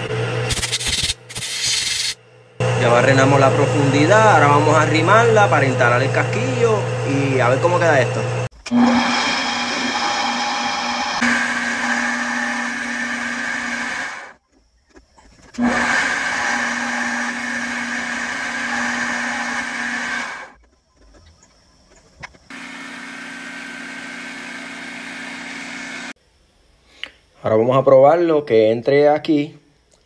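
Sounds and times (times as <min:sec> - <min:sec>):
metal lathe motor hum: 0:02.4 - 0:14.4, 0:15.6 - 0:20.6, 0:22.5 - 0:26.1.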